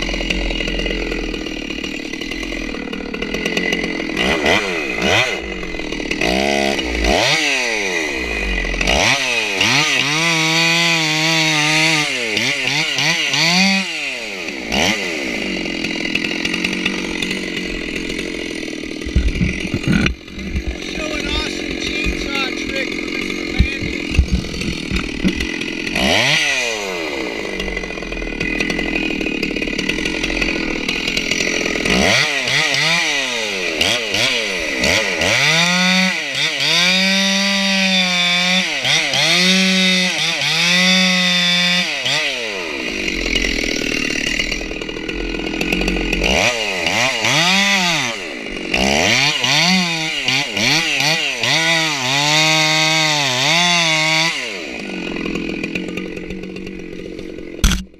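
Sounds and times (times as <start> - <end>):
chainsaw revving and cutting: 0.0 - 57.9
sharp knocks: 23.5 - 25.6.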